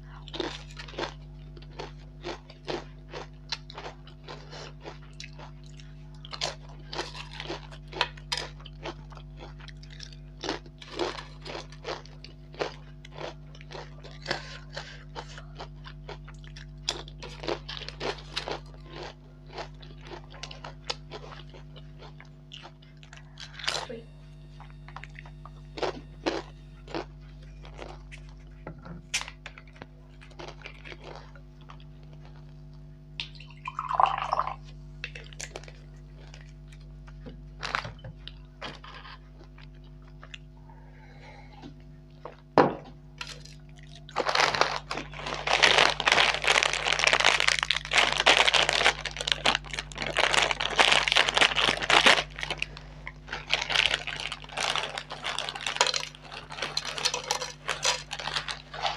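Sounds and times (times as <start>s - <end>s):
crisp crunches and mouth clicks: 35.0s - 40.5s, 43.2s - 58.9s
plastic chip packet crinkling: 43.2s - 58.9s.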